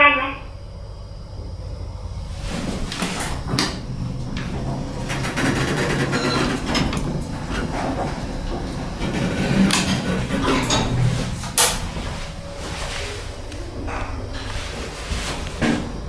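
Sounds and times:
elevator machinery hum: 0.0 - 16.0
sliding elevator doors: 0.0 - 16.0
door mechanism clicks and clunks: 2.4 - 12.2.

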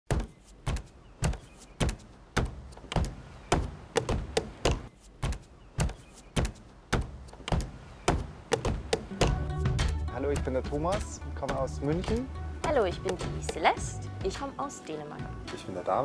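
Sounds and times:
sneakers stomping on deck planks: 0.1 - 9.5.

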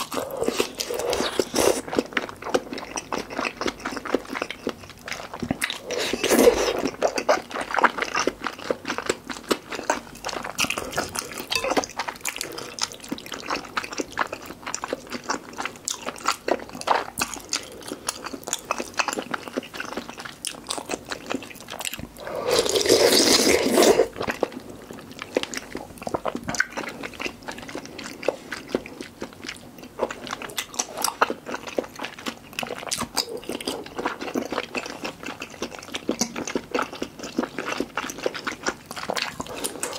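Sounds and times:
slurping soup: 0.0 - 2.0, 5.7 - 7.2, 22.2 - 24.2
wet chewing and mouth clicks: 0.0 - 39.9.

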